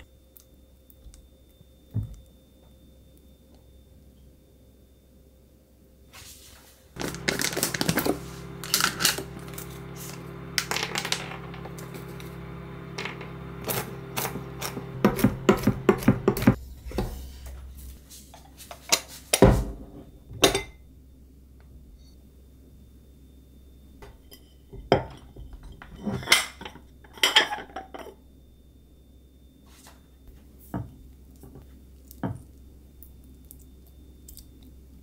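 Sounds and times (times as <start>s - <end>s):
microwave oven humming: 0.0s - 18.2s, 19.4s - 35.0s
knife chopping on wooden board: 13.7s - 16.6s.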